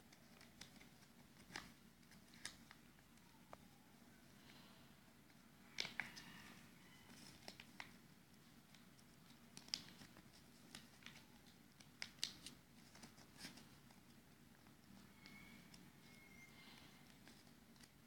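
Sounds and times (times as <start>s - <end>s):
paper being folded: 0.1s - 3.4s, 7.0s - 18.0s.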